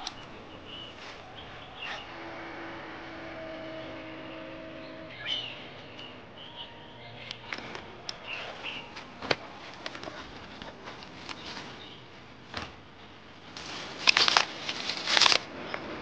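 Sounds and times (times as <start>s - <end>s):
leaves and twigs rustling: 0.0s - 3.0s, 7.5s - 16.0s.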